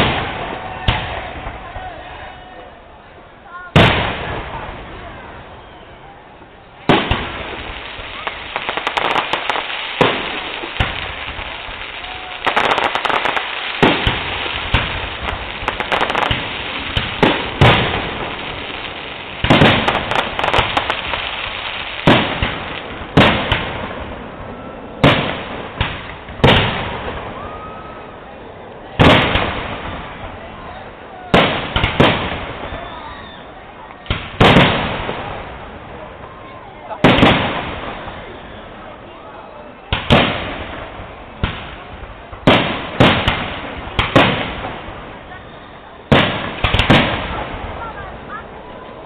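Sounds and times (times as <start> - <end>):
firework crackle: 0.0 - 49.0
firework shells bursting: 6.9 - 23.9.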